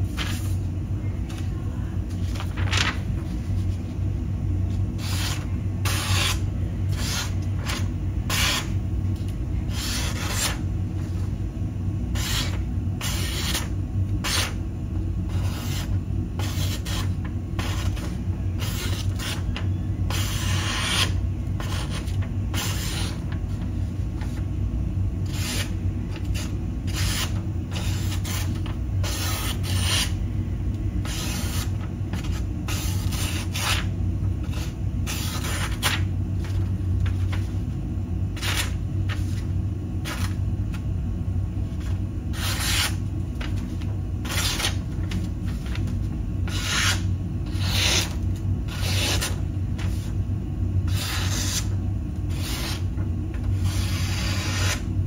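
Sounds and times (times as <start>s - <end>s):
steady low hum: 0.0s - 55.0s
knife slicing cardboard: 25.3s - 30.1s, 42.3s - 43.0s, 46.5s - 50.1s, 50.9s - 51.7s, 52.3s - 52.8s, 53.6s - 54.8s.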